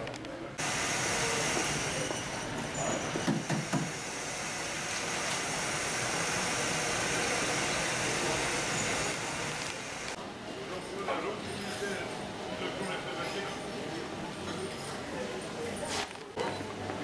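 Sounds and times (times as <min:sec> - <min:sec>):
faint voices: 0:00.0 - 0:03.3
ventilation hum and hiss: 0:00.0 - 0:17.0.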